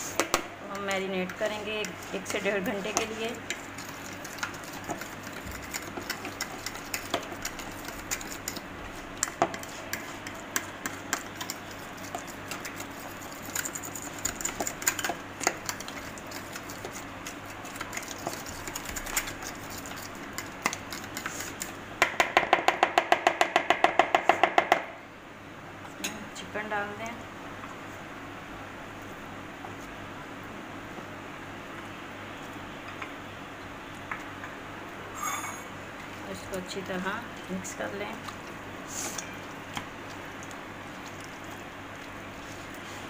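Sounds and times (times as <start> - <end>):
fork stirring in plastic bowl: 0.0 - 21.8.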